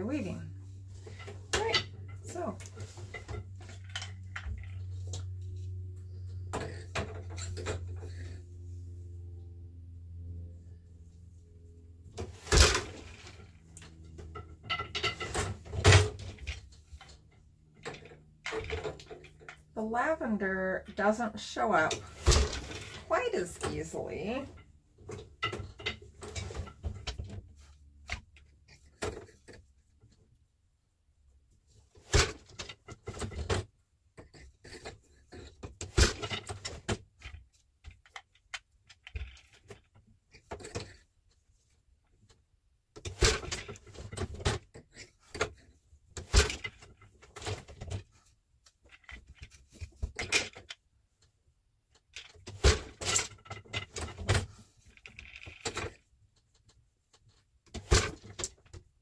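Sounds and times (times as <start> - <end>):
wooden shuttles thrown and caught: 12.2 - 13.3, 22.0 - 23.0, 43.0 - 45.6, 46.2 - 48.0, 52.4 - 55.9, 57.7 - 58.8.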